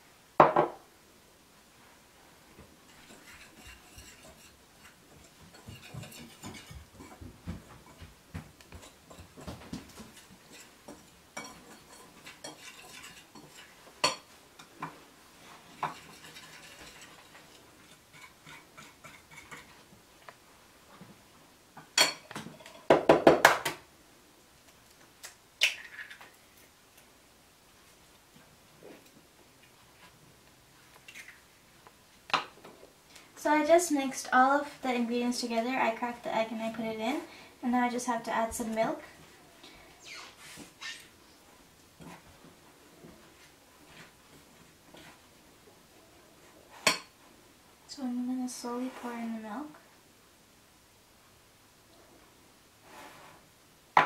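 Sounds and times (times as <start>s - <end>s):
whisk scraping in ceramic bowl: 2.9s - 7.2s, 8.8s - 13.8s, 15.6s - 19.8s.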